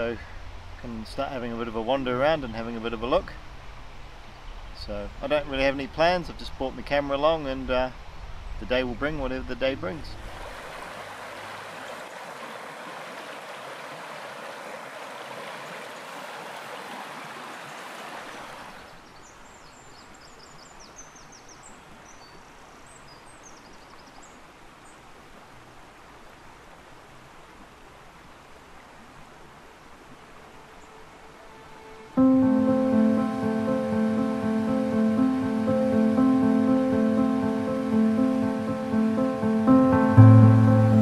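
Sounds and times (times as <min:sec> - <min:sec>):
stream water flowing: 0:00.0 - 0:04.8, 0:05.4 - 0:41.0
birds chirping: 0:00.0 - 0:10.3, 0:30.6 - 0:41.0.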